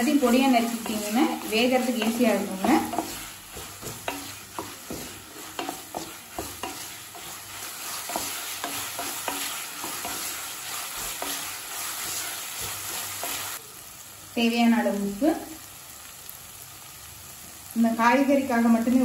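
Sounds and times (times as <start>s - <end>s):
spatula knocking and scraping pan: 0.0s - 13.6s
vegetables sizzling in oil: 0.0s - 19.0s.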